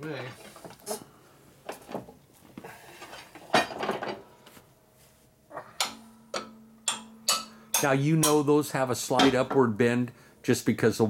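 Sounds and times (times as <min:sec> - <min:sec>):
metal clanks of steel parts: 0:03.0 - 0:04.2, 0:05.6 - 0:08.6, 0:09.2 - 0:09.7
mallet striking steel part: 0:05.8 - 0:08.5.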